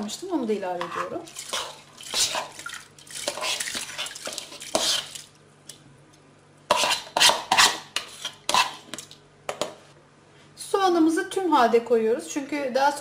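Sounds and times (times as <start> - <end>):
metal spoon scraping bowl: 0.8 - 5.2, 6.7 - 9.0.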